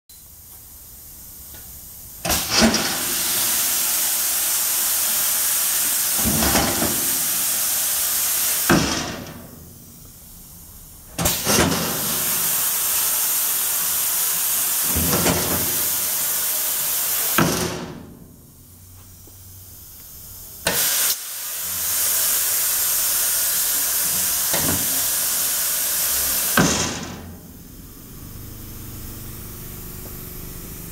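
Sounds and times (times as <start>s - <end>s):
compressed air hissing: 0.8s - 17.8s, 18.6s - 30.9s
machine clunks: 26.6s - 27.4s.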